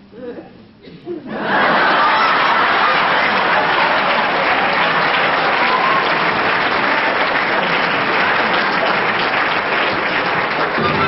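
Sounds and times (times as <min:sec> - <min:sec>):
audience applauding: 0:01.5 - 0:11.0
orchestra playing: 0:10.8 - 0:11.0.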